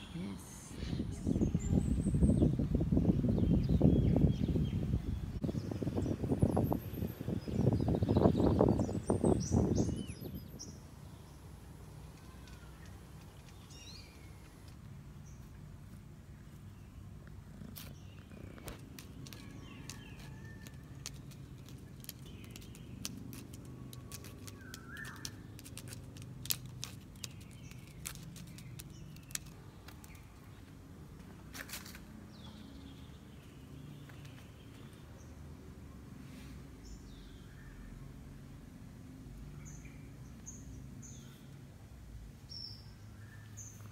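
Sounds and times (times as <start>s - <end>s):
birds chirping: 0.0s - 15.6s, 16.3s - 30.8s
cat claws scratching bark: 17.3s - 30.3s.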